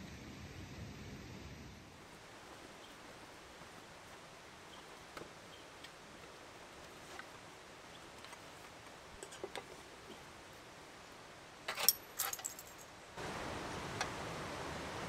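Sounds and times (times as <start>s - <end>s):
metal cookware clinking and rattling: 11.7s - 12.8s.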